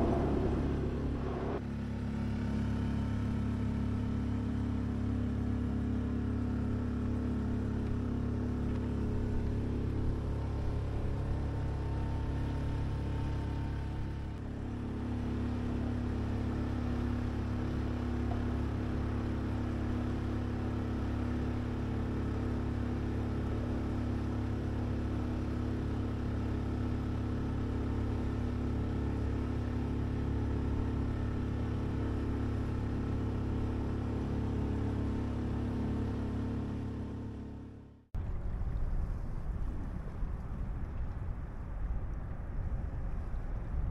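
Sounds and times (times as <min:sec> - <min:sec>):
boat motor droning: 0:00.0 - 0:40.7.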